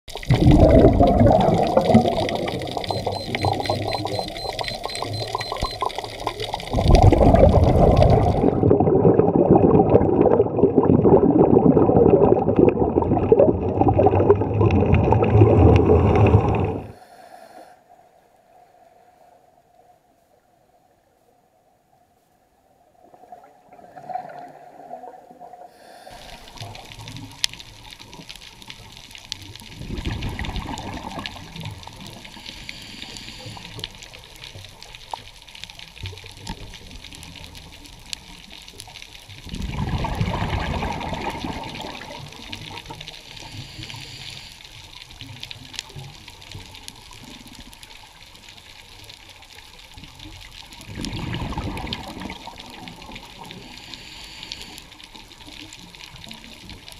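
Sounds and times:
faint crackling clicks: 0.1s - 8.6s, 26.0s - 56.9s
regulator exhaust bubbling underwater: 0.1s - 16.9s, 39.5s - 42.8s
steady hiss: 16.9s - 20.3s, 25.7s - 28.9s, 31.9s - 34.3s, 43.1s - 45.1s, 53.0s - 55.5s.

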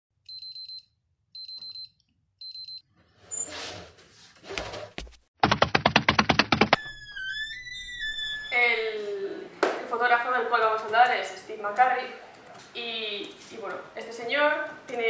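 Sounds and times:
alarm clock beeping: 0.3s - 0.8s, 1.4s - 2.8s.

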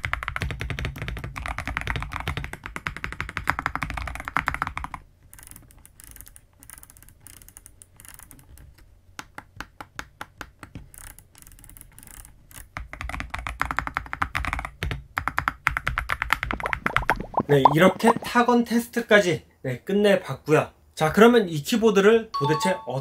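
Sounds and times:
mechanical keyboard typing: 0.0s - 7.5s, 11.0s - 17.0s.

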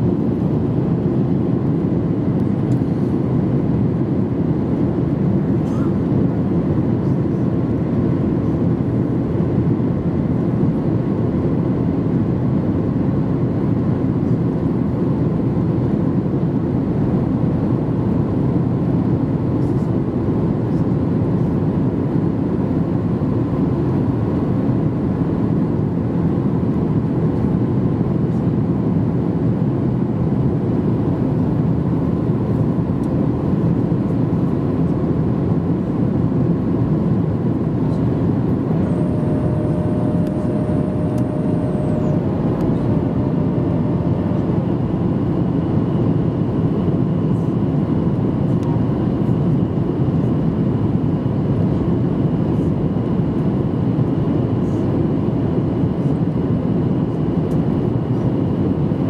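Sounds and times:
air rushing along fuselage: 0.0s - 59.0s
jet engines humming: 0.0s - 59.0s
faint steady tone: 37.9s - 45.6s.

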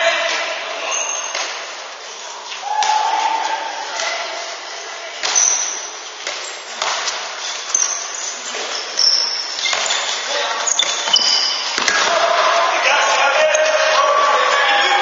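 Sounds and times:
reverberant hall hum: 0.0s - 15.0s
shoes squeaking on court: 0.8s - 2.7s, 5.2s - 12.8s.

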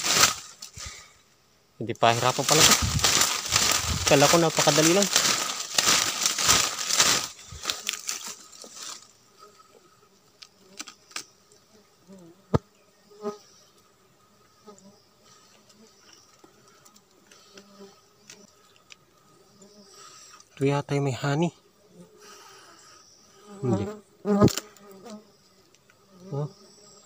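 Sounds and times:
faint buzz of bees: 0.0s - 27.0s
fabric rustling against microphone: 2.2s - 9.1s.

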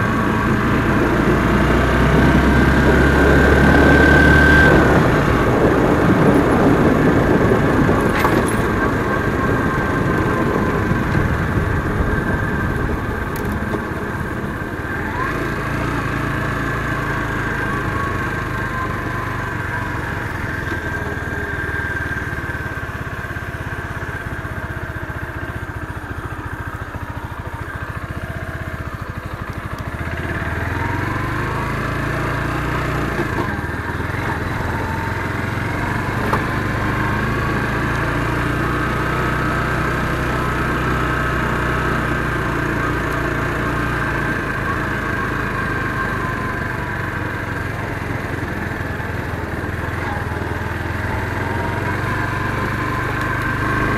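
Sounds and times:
motorcycle engine running: 0.0s - 53.9s
wind rush: 1.0s - 15.2s.

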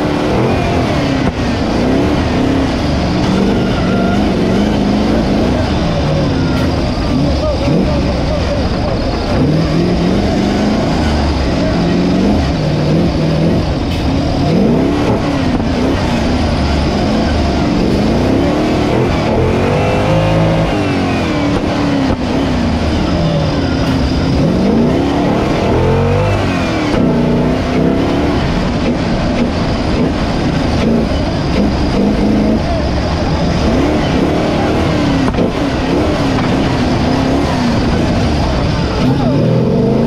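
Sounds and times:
off-road vehicle engines revving: 0.0s - 40.0s.

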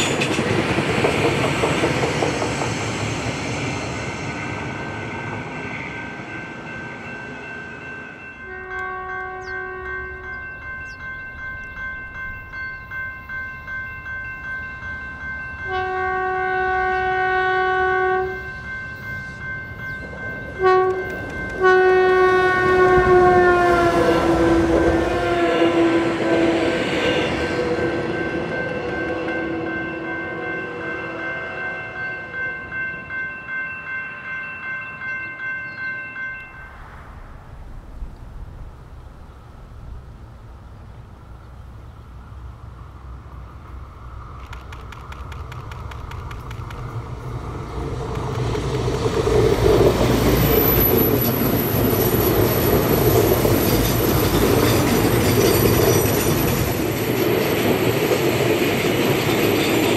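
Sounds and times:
railcar rushing past: 0.0s - 59.9s
crossing bell ringing: 3.4s - 37.3s, 46.9s - 59.9s
train horn blasts: 8.4s - 10.3s, 15.6s - 18.6s, 20.5s - 28.1s.

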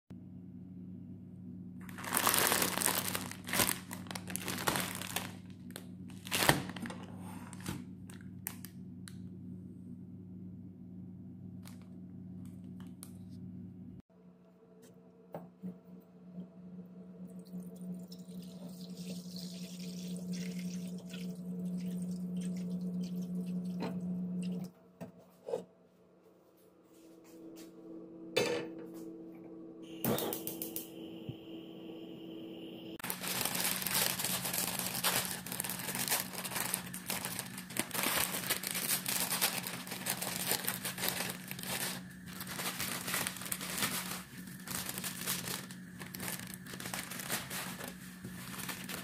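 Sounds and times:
steady low hum: 0.2s - 49.0s
plastic packets crinkling: 1.8s - 8.7s, 33.0s - 49.0s.

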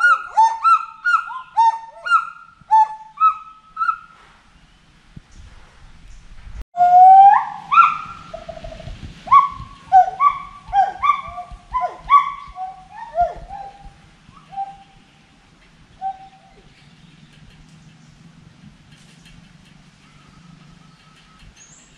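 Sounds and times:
gibbon whooping and hooting: 0.0s - 4.0s, 6.8s - 14.8s.

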